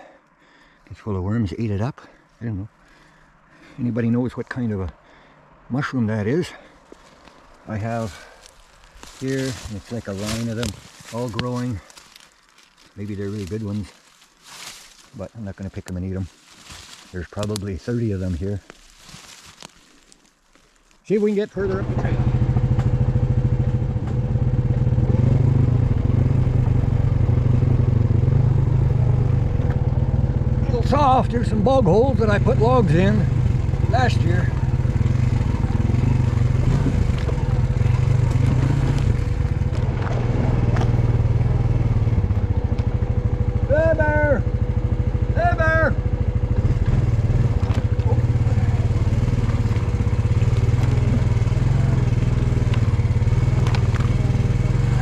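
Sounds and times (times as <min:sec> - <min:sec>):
quad bike engine running: 0:06.6 - 0:14.0, 0:21.6 - 0:55.0.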